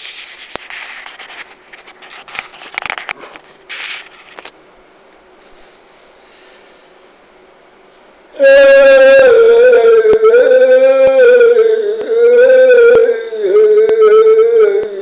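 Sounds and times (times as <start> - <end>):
man chanting long notes: 8.3 - 15.0.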